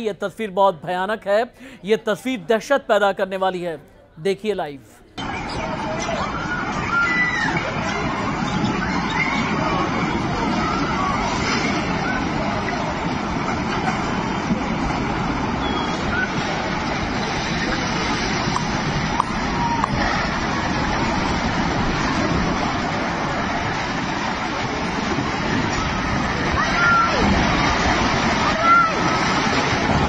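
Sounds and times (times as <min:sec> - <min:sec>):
landslide roar: 0:05.3 - 0:30.0.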